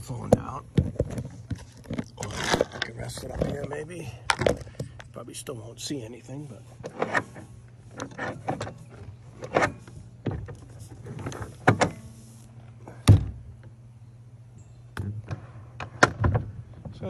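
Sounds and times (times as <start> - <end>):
motor mount rattling and clunking: 0.0 - 5.2, 6.8 - 12.2, 12.8 - 13.8, 15.0 - 17.0
steady low hum: 0.0 - 17.0.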